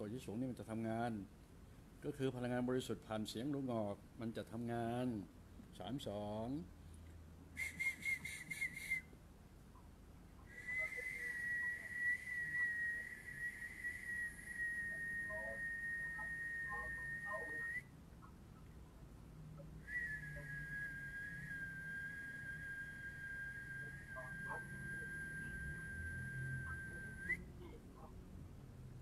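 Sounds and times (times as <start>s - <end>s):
long whistled notes: 10.5s - 17.8s, 19.8s - 27.4s.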